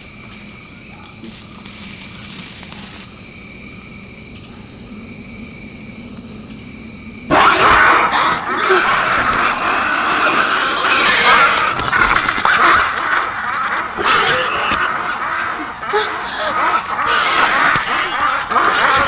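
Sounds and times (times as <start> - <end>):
night insects droning: 0.0 - 19.0.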